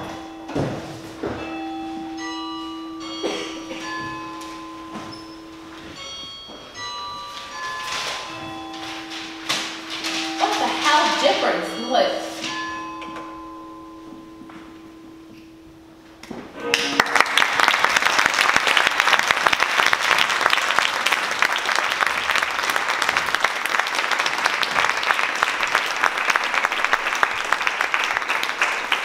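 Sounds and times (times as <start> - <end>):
held music notes: 0.0 - 17.6
audience applauding: 16.6 - 29.0.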